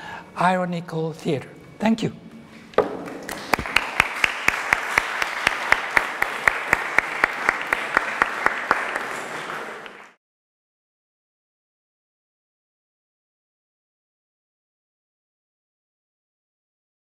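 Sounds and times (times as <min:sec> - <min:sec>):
sharp even hand claps: 0:02.8 - 0:10.2
audience applauding: 0:03.0 - 0:10.2.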